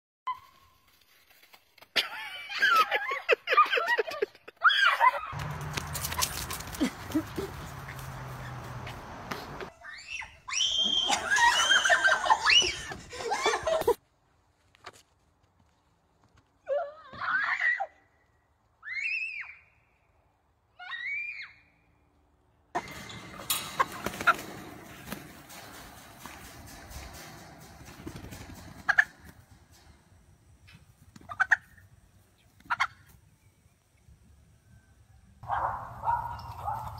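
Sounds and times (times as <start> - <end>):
shrill swooping cries and shrieks: 9.7 - 13.6, 18.8 - 19.7, 20.8 - 21.7
chickens clucking and squawking: 22.8 - 29.9, 31.1 - 33.2.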